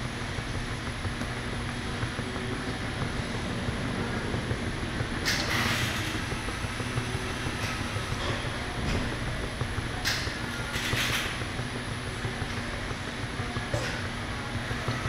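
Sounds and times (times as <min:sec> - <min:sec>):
machine mechanical hum: 0:00.0 - 0:15.0.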